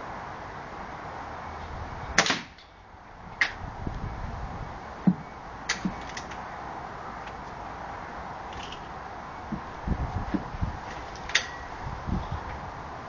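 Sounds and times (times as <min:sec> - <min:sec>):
air rifle shot crack: 0:02.2 - 0:02.6.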